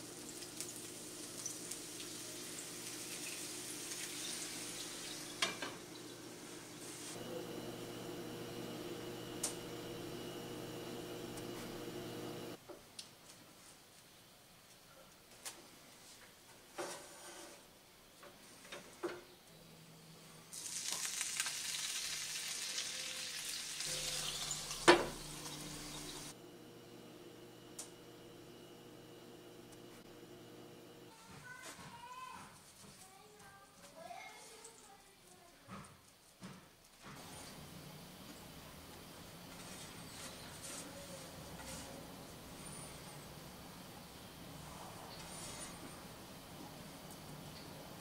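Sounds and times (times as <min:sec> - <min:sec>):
water sizzling in frying pan: 0:00.0 - 0:07.2, 0:20.5 - 0:26.4.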